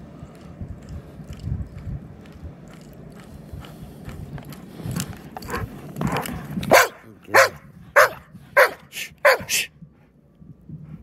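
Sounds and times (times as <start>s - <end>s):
dog barking: 6.7s - 9.6s.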